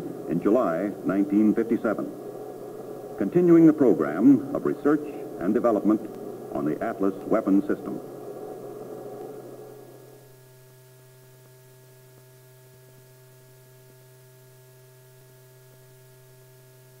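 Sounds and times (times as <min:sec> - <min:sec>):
faint electrical hum: 0:00.0 - 0:17.0.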